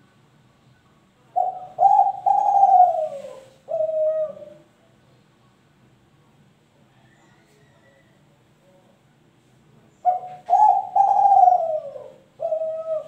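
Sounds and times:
dove cooing: 1.4 - 4.7, 10.0 - 13.0.

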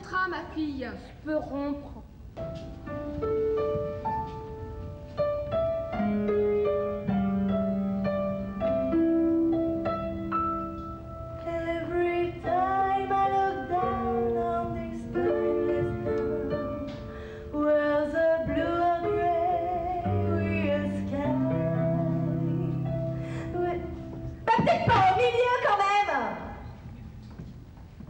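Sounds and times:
instrumental backing music: 2.2 - 25.7
woman singing: 11.4 - 16.9, 17.5 - 22.8.

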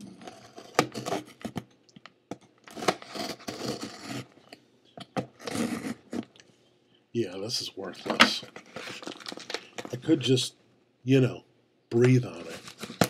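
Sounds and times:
knife scraping through packing tape: 0.3 - 1.5, 2.6 - 4.4, 5.3 - 6.3.

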